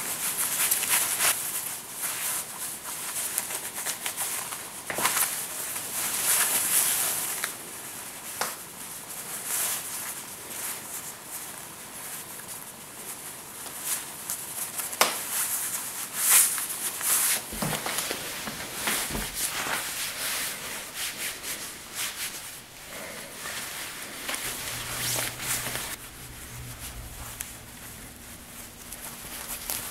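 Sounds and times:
fabric swishing and rustling: 13.2 - 29.9.

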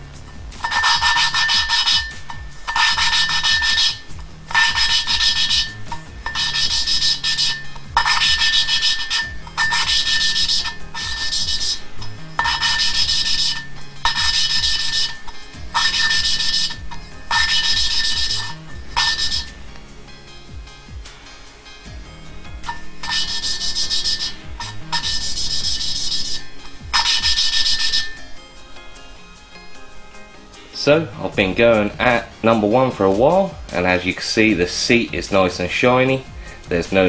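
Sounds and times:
valve rasping against seat: 0.6 - 19.7, 22.6 - 28.3.

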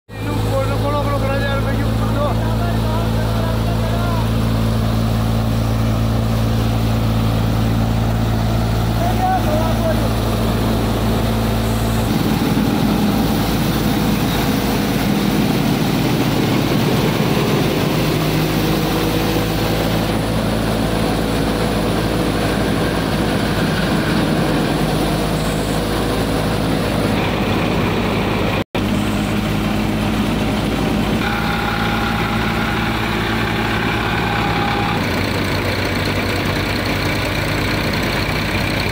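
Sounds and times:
engine hum: 0.1 - 38.9
thresher machine din: 0.1 - 38.9.

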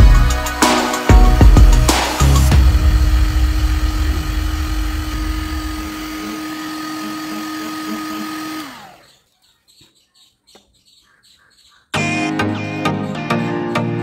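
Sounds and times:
heat gun fan whining: 0.4 - 9.4.

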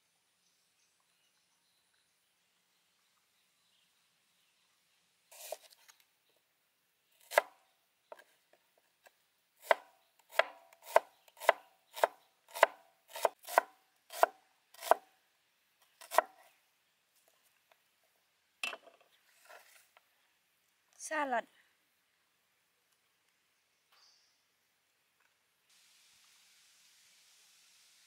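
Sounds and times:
knife chopping on wooden board: 9.6 - 15.0, 16.0 - 16.3.

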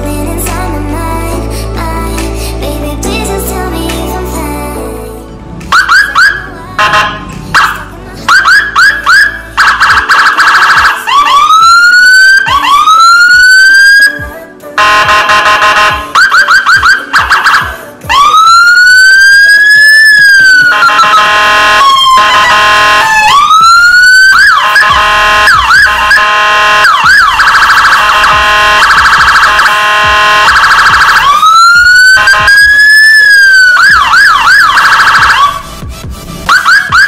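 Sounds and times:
electronic siren cycling tones: 5.7 - 14.2, 18.2 - 37.0.

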